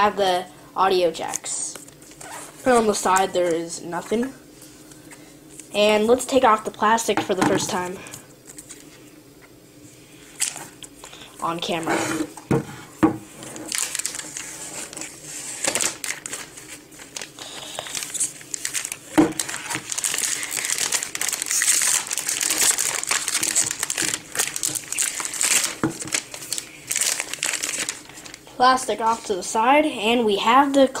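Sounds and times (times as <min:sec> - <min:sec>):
plastic film peeling: 0:13.4 - 0:28.5.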